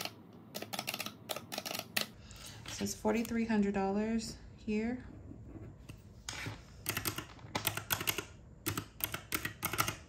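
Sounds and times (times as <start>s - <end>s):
calculator keys clicking: 0.0s - 2.2s, 6.8s - 10.0s.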